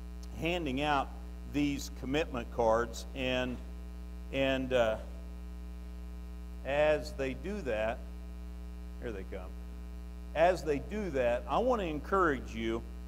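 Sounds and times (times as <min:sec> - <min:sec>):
electrical mains hum: 0:00.0 - 0:13.0
man speaking into microphones: 0:00.2 - 0:03.7, 0:04.3 - 0:05.2, 0:06.6 - 0:08.1, 0:09.0 - 0:09.6, 0:10.3 - 0:12.9.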